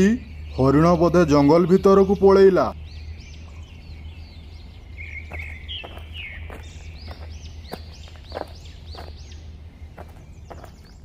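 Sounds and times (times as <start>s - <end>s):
birds chirping: 0.0s - 11.0s
steady low hum: 0.0s - 11.0s
light footsteps: 5.2s - 11.0s.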